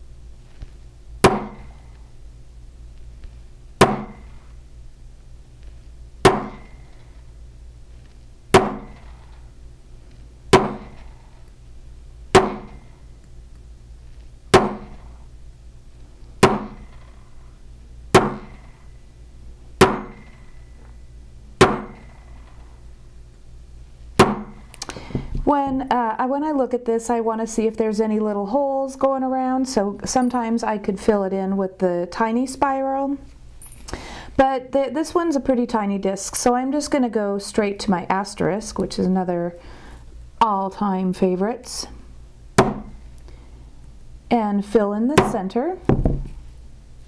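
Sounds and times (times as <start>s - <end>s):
mallet striking metal stamp: 1.2s - 1.7s, 3.8s - 4.3s, 6.3s - 6.7s, 8.6s - 9.1s, 10.6s - 11.0s, 12.4s - 12.8s, 14.6s - 15.1s, 16.4s - 17.0s, 18.2s - 18.6s, 19.8s - 20.4s, 21.6s - 22.1s, 24.2s - 24.6s, 42.6s - 42.9s.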